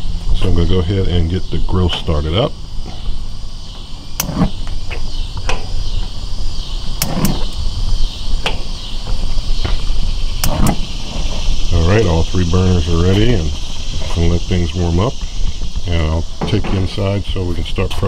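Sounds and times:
crickets chirping: 0.0s - 18.0s
grill igniter clicks: 4.2s - 5.7s, 7.0s - 7.6s, 10.4s - 10.9s
gas burner igniting thump: 4.2s - 5.8s, 7.0s - 7.6s, 10.4s - 11.4s.

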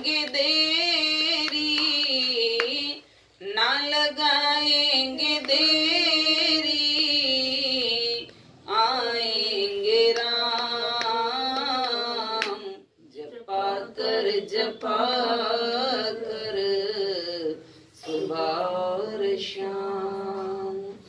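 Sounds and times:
woman singing devotional song: 0.0s - 21.0s.

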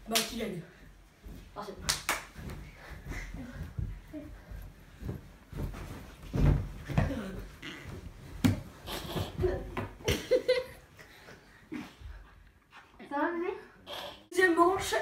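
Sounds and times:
bodies thudding on cushions: 1.0s - 10.4s.

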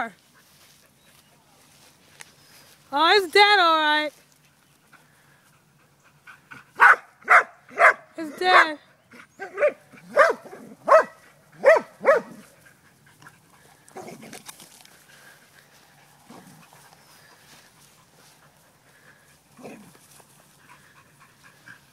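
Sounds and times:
dog barking: 6.8s - 8.8s, 9.4s - 12.4s.

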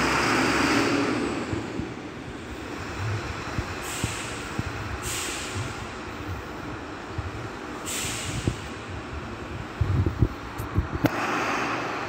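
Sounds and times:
diesel truck engine running: 0.0s - 12.0s
high hiss: 3.8s - 5.9s, 7.8s - 8.8s.

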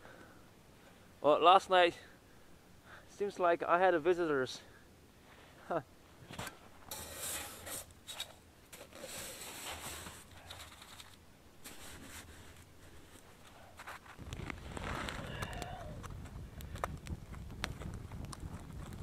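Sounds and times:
crunching and scraping of snow: 6.2s - 19.0s.

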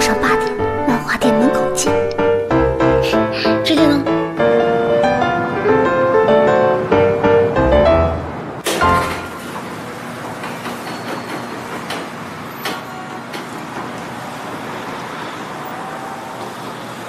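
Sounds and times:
street traffic hiss: 4.9s - 17.0s
metal roller shutter rattling: 8.6s - 11.8s.

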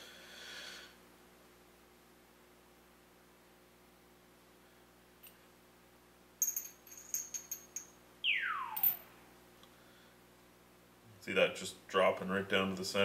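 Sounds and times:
metal clinking on glass: 6.4s - 8.0s
spinning top descending tone: 8.2s - 9.2s.

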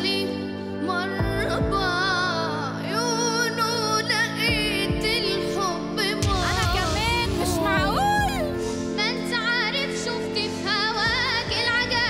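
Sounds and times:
girl singing with vibrato: 0.0s - 12.0s
sustained instrumental accompaniment: 4.6s - 10.6s.

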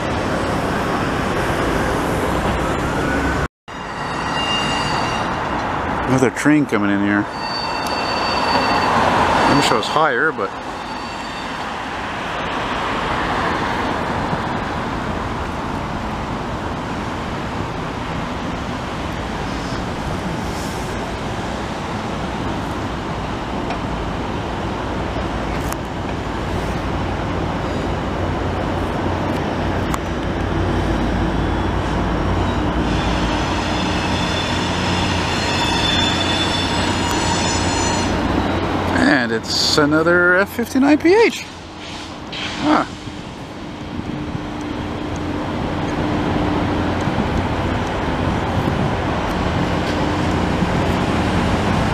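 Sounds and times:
diesel locomotive drone: 0.0s - 51.9s
train wheels rumbling on rail: 0.0s - 51.9s
wheel squeal: 3.7s - 5.5s, 7.2s - 9.9s, 10.6s - 11.9s, 31.6s - 38.7s.

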